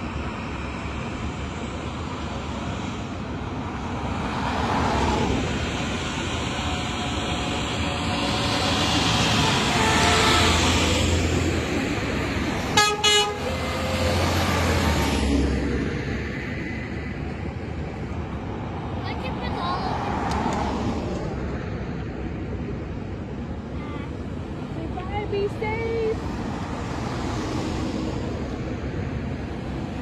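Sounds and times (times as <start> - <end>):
trucks driving past: 0.0 - 30.0
horn toots: 6.6 - 11.0, 12.7 - 14.0.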